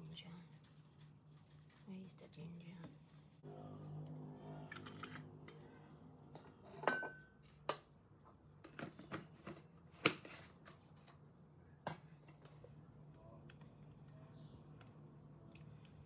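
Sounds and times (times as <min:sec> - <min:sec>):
steady low hum: 0:03.4 - 0:07.4.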